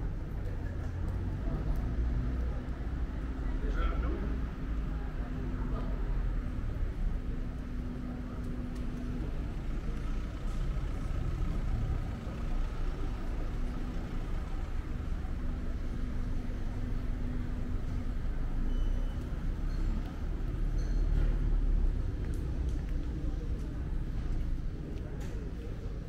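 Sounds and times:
street background: 0.0 - 26.0
vehicle engine rumbling: 0.0 - 26.0.

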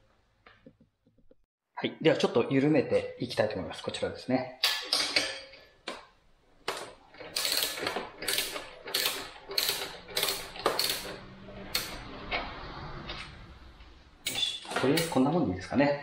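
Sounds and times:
ratchet wrench clicking: 7.4 - 12.0.

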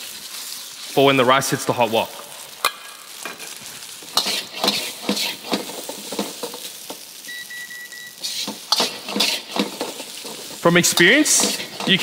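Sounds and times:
rice sizzling in a wok: 0.0 - 12.0
metal ladle scraping wok: 3.3 - 6.7, 8.2 - 12.0.

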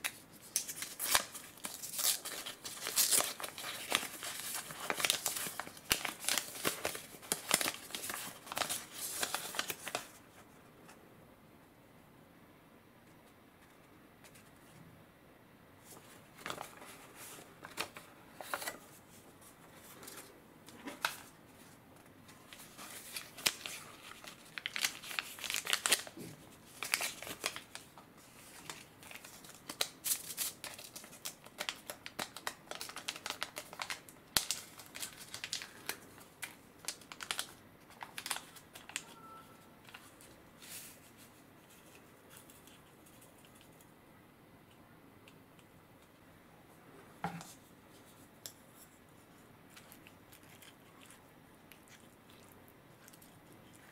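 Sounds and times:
paper and plastic crinkling: 0.0 - 10.4, 15.8 - 43.9.

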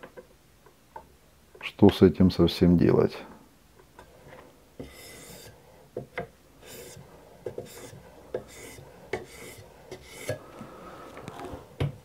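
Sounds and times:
sharpening stone rasping on knife: 4.8 - 5.6, 6.6 - 10.4.

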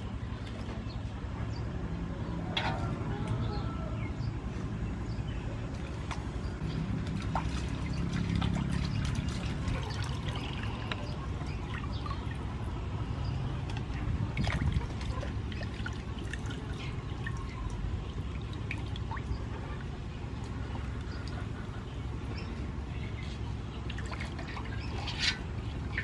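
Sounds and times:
water sloshing in metal basin: 2.4 - 3.0, 5.6 - 21.7, 23.2 - 26.0.

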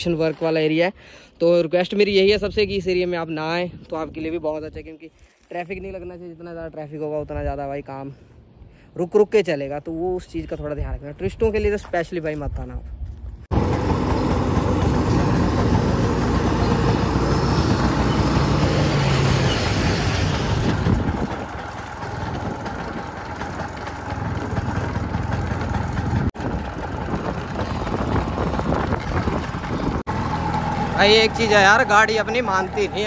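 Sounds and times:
wind noise on microphone: 2.1 - 4.9, 19.8 - 23.2, 26.0 - 30.1
scooter tyre rumble on dirt road: 13.0 - 33.0
truck running: 13.5 - 33.0.

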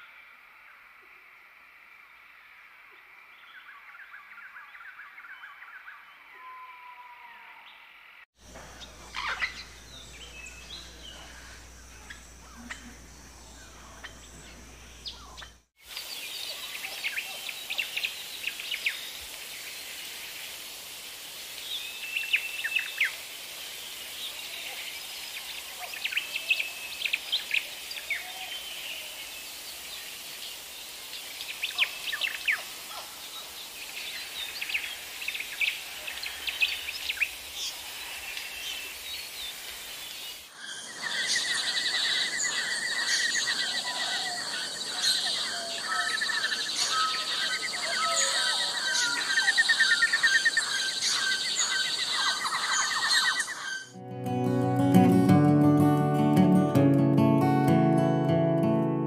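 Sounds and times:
birds chirping and trilling: 3.4 - 20.0, 30.6 - 54.0
steady hiss: 8.4 - 52.8.

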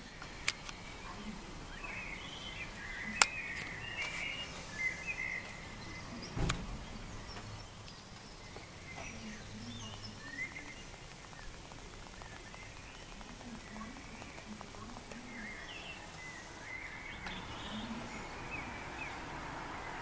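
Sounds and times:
sharp clicks: 0.0 - 0.8, 2.8 - 4.3, 6.3 - 17.5
bird chirps: 0.0 - 20.0.

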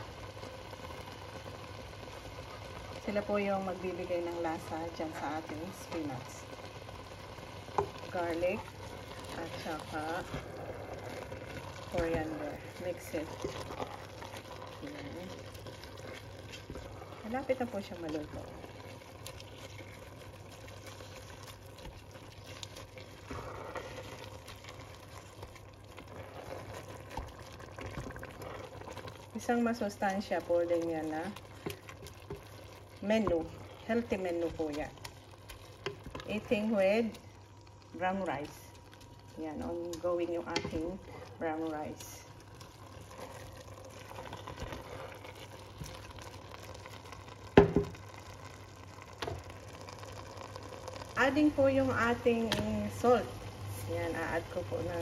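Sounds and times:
food simmering and bubbling: 0.0 - 55.0
hard object knocking on pot: 47.6 - 48.0.

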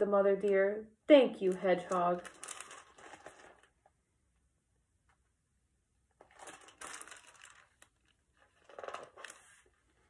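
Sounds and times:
book pages rustling: 1.6 - 3.8, 6.2 - 10.0.

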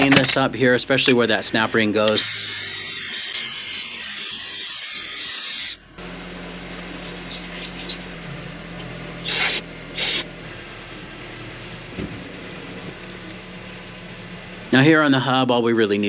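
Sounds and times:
abrasive scrubbing on metal: 2.2 - 5.8.

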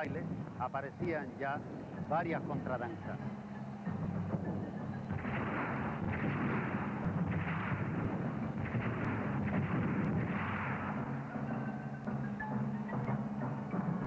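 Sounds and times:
cannon fire booming: 4.3 - 11.7.

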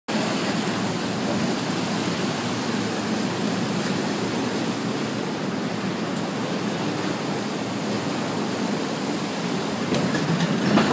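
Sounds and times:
water rushing along channel: 0.1 - 10.9.

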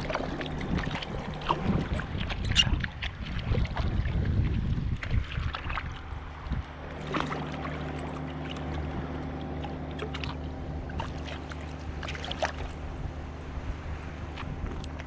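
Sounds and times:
motor humming: 0.0 - 3.0, 6.0 - 15.0
water splashing and lapping: 0.0 - 15.0.

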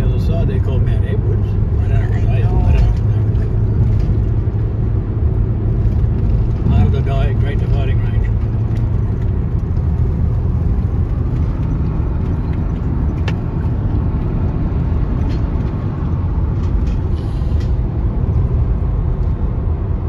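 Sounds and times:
car road and engine noise: 0.0 - 20.0.

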